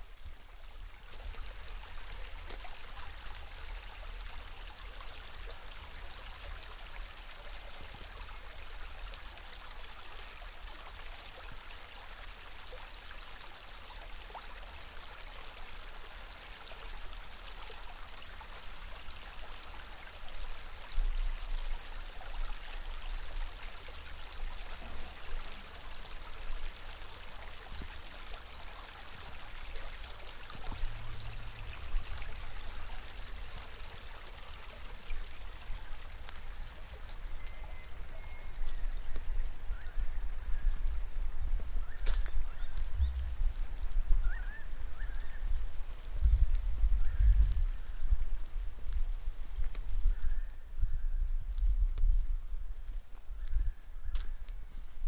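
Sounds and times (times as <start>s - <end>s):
creek water running over rocks: 0.0s - 55.0s
wind buffeting microphone: 39.2s - 44.8s, 45.4s - 52.7s.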